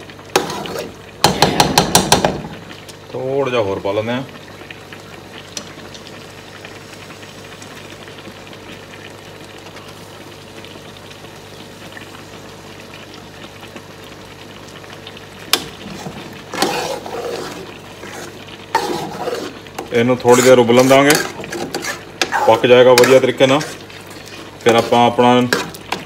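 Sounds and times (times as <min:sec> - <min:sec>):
food bubbling in pans: 0:00.0 - 0:26.0
spoon stirring thick sauce: 0:16.0 - 0:26.0.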